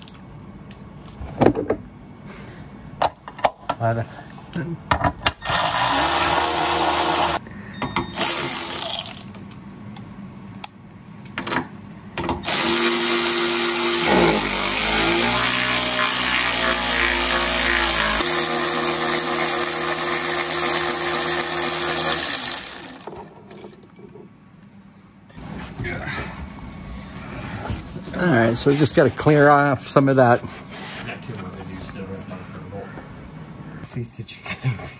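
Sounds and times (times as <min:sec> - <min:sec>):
electric ratchet driving bolts: 0:05.4 - 0:07.4, 0:08.1 - 0:09.4, 0:12.4 - 0:23.2.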